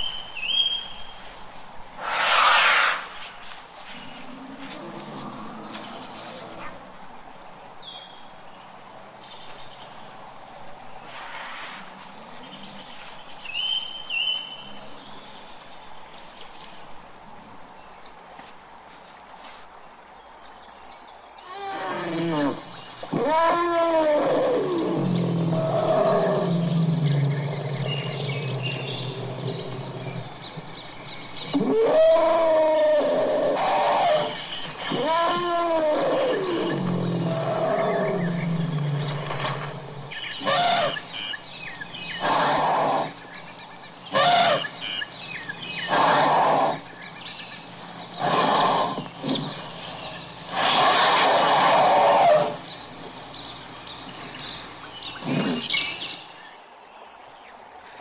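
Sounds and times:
elephant trumpeting: 2.0 - 3.3, 21.5 - 41.3, 42.1 - 43.2, 44.1 - 44.8, 45.8 - 46.9, 48.0 - 52.8.

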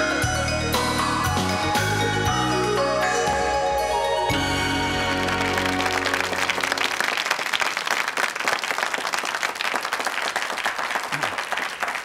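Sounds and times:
theme music: 0.0 - 7.3
audience applauding: 5.0 - 12.0.

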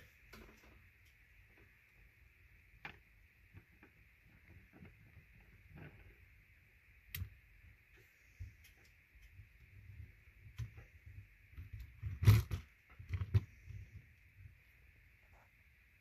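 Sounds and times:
plastic parts clicking and knocking: 11.5 - 13.8.

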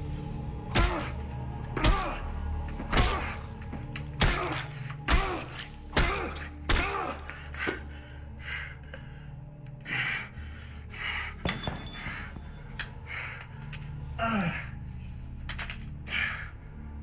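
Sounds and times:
low music drone: 0.0 - 17.0
heavy panting breaths: 7.2 - 15.4.

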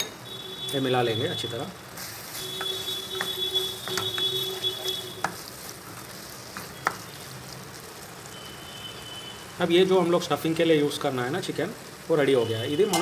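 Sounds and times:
low sizzle: 0.0 - 13.0
spatula scraping in pan: 2.0 - 8.0
spatula knocking against pan: 2.6 - 4.4.

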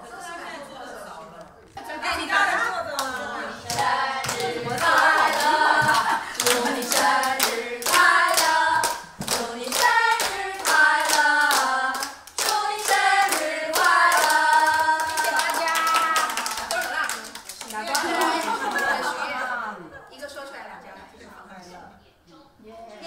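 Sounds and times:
women singing together: 1.8 - 17.2
hands clapping to the beat: 3.7 - 18.6.

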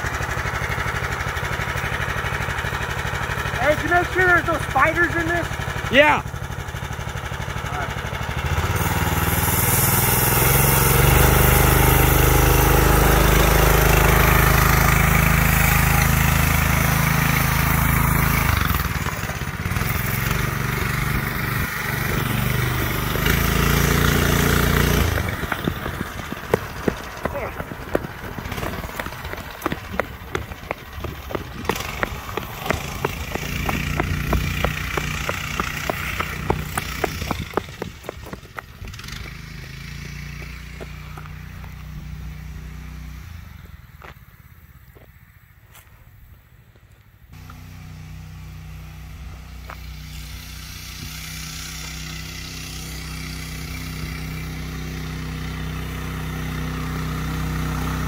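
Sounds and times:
go-kart engine running: 0.0 - 43.4, 47.4 - 58.0
tyres crackling on gravel: 18.1 - 42.1.

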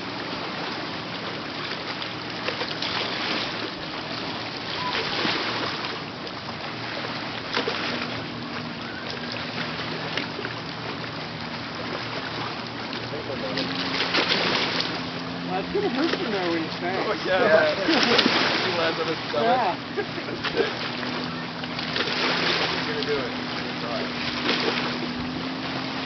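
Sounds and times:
jet ski engine running: 0.0 - 26.0.

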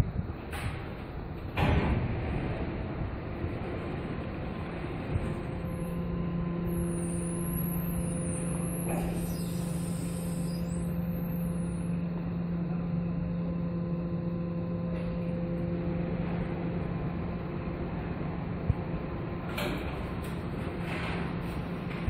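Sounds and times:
parking lift low hum: 0.0 - 22.0
wavering high-pitched squeal: 5.6 - 12.0.

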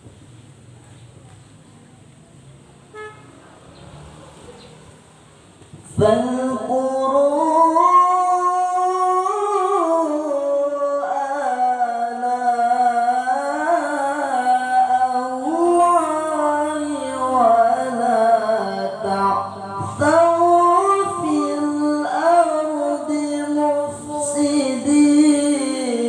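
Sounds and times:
boy reciting melodically: 5.7 - 26.0.

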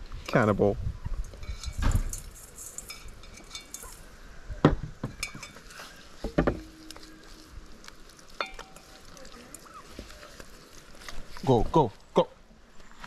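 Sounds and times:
metal bowls clinking: 1.2 - 4.2, 5.1 - 9.9.

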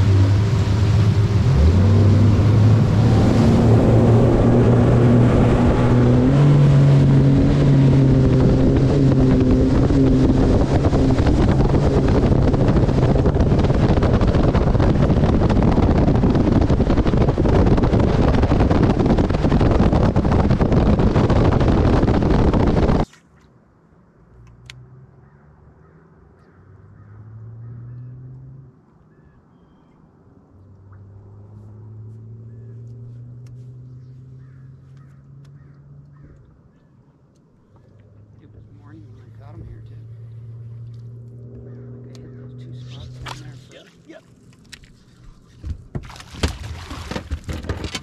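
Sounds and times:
outboard motor running: 0.0 - 23.1, 32.3 - 37.0, 37.6 - 48.0
wind on microphone: 0.0 - 23.1
water rushing past hull: 0.0 - 23.4, 45.2 - 48.0.

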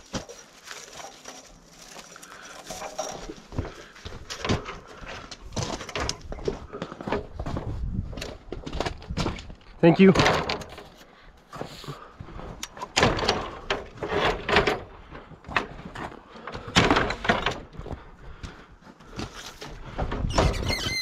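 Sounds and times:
ladder scraping and knocking: 0.0 - 18.0
metal sliding on metal squeal: 20.3 - 21.0.

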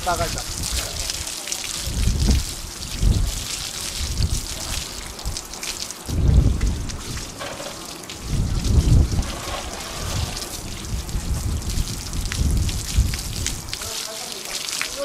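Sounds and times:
hose water splashing and dripping: 0.0 - 15.0
heavy low rumbles: 6.1 - 7.3.

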